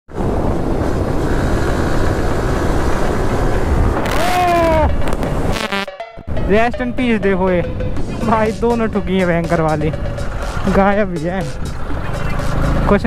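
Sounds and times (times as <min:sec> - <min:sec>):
wind noise: 0:00.1 - 0:10.8
short pitched tone: 0:04.8 - 0:08.3
motorcycle engine running: 0:07.7 - 0:13.0.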